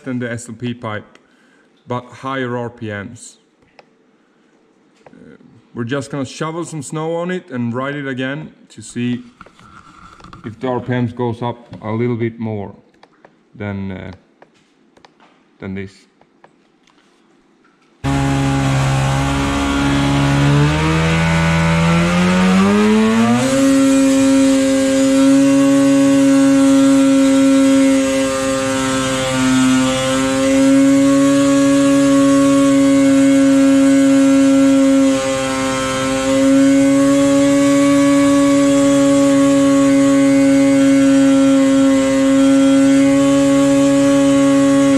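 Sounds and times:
snowmobile engine revving: 18.0s - 44.9s.

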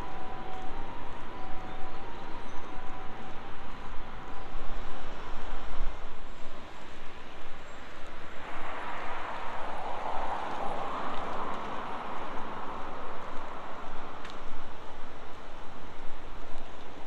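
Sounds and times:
low traffic rumble: 0.0s - 17.0s
car passing: 8.1s - 14.8s.

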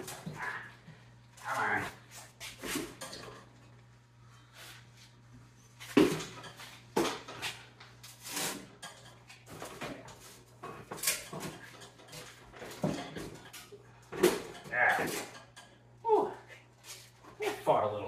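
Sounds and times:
metallic clanks and rattles: 8.7s - 15.8s.

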